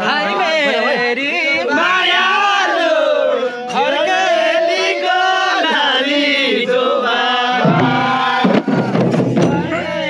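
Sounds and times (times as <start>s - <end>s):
percussion beats: 7.5s - 10.0s
voices singing wavering notes: 9.4s - 10.0s.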